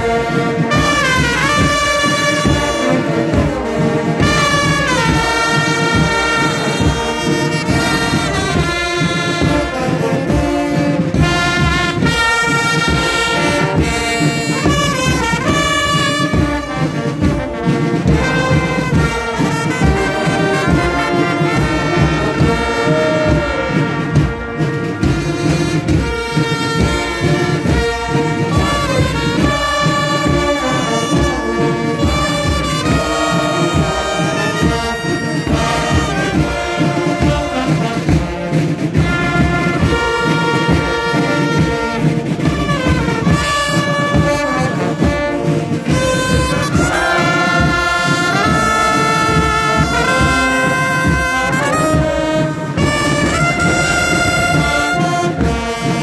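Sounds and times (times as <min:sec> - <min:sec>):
brass band playing marching tune: 0:00.0 - 0:56.0
steady drum beat: 0:00.0 - 0:56.0.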